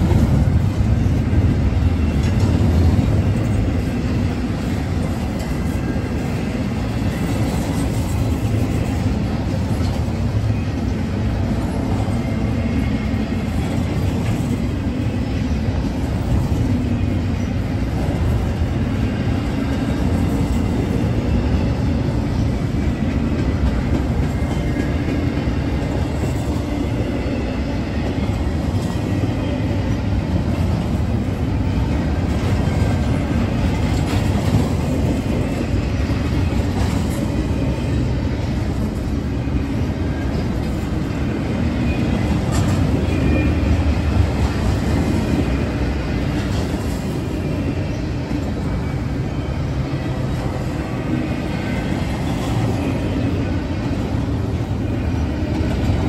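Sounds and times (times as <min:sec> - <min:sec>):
freight train rumbling past: 0:00.0 - 0:56.0.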